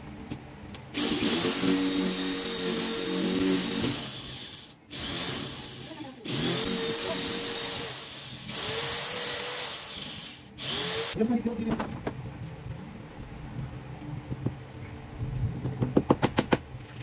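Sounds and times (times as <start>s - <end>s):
electric drill whining: 1.0s - 11.2s.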